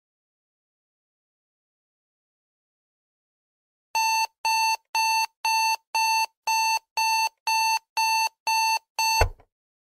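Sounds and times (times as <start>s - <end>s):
alarm clock beeping: 4.0s - 9.3s.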